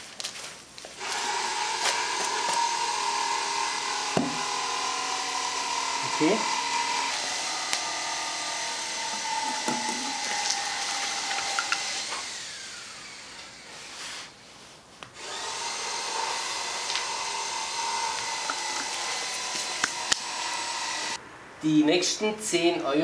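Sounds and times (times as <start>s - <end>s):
steady background hiss: 21.2s - 23.0s.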